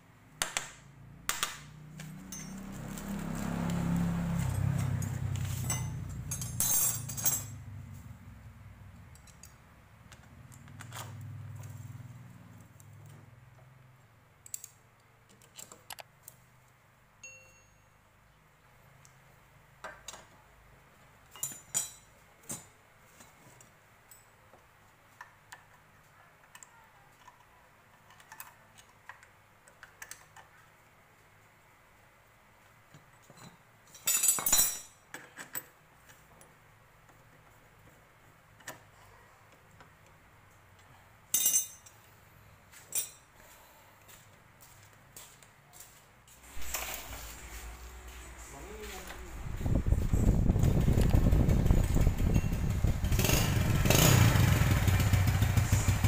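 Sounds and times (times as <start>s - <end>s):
hand tools clinking on metal: 2.0s - 7.6s, 21.3s - 22.7s, 33.2s - 35.6s, 41.3s - 42.1s, 42.7s - 43.3s
low rumble with rattling: 46.6s - 56.0s.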